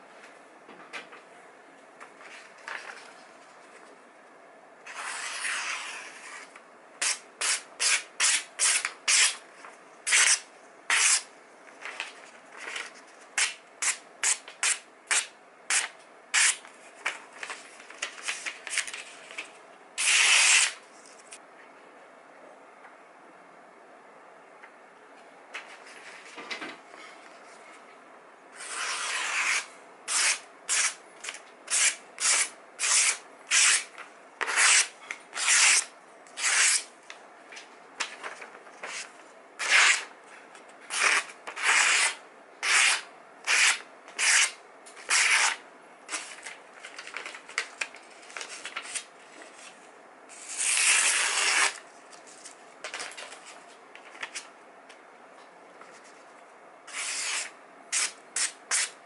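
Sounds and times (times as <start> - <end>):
knife slicing through paper: 28.6 - 31.0.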